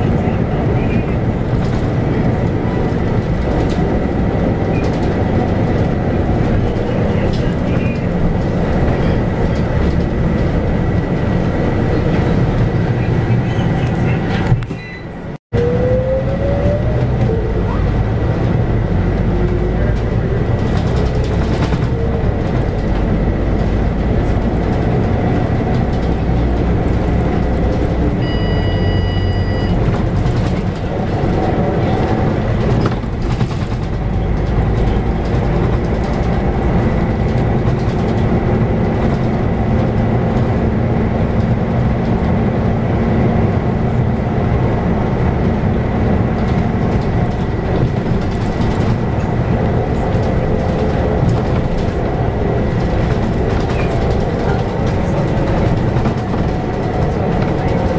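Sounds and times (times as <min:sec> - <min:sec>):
bus diesel engine running: 0:00.0 - 0:57.9
short electronic beep: 0:14.7 - 0:15.2, 0:28.2 - 0:29.8.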